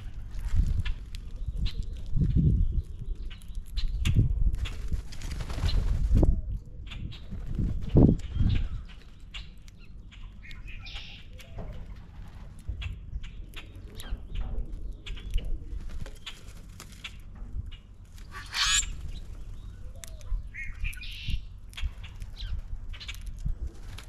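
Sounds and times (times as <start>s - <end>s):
grackles harsh calls: 18.2s - 19.0s.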